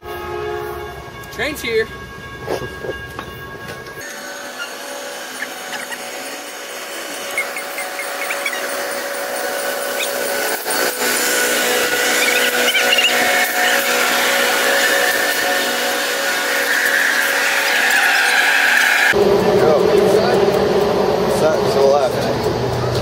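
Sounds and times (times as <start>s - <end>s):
train metallic whine: 0.0s - 23.0s
train brakes squealing: 4.0s - 19.2s.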